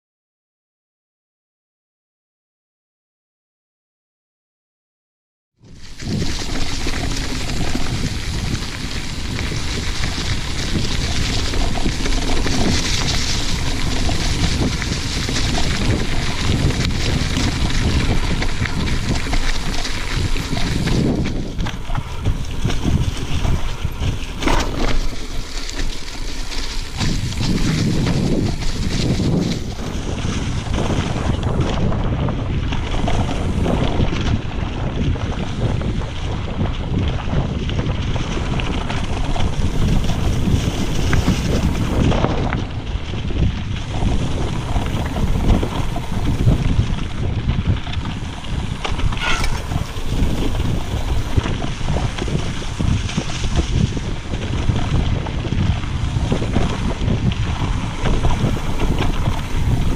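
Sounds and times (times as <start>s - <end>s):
bike tyres and frame rattling: 5.6s - 59.9s
wind buffeting microphone: 5.6s - 59.9s
high squeak: 49.2s - 49.8s.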